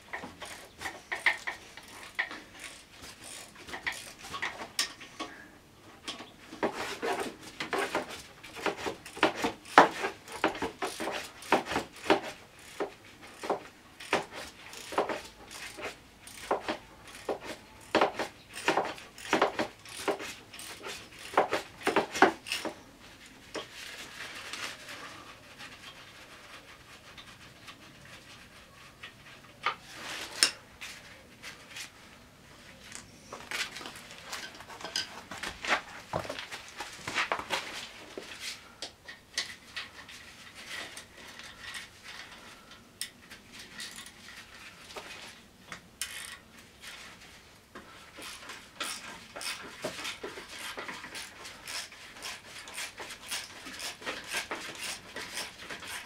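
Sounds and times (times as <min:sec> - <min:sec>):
hand tools clicking on metal: 0:00.1 - 0:05.0.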